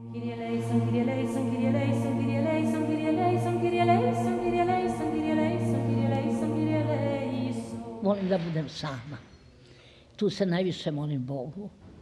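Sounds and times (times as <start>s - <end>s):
choir singing a slow chant: 0.0s - 8.9s.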